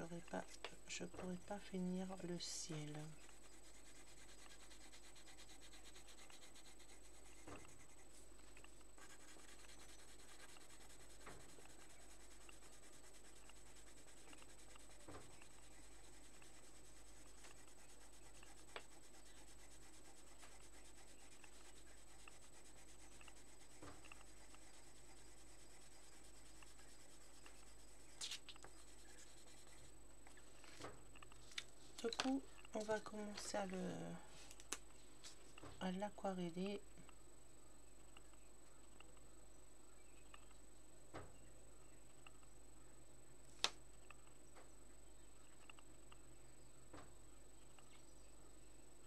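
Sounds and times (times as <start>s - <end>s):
pencil scratching on paper: 0.0s - 30.0s.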